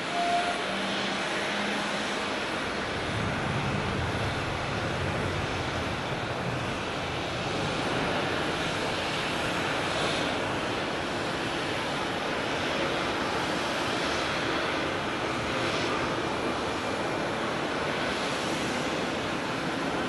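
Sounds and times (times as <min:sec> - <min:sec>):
jet engines rushing: 0:00.0 - 0:20.0
rain hiss: 0:00.0 - 0:20.0.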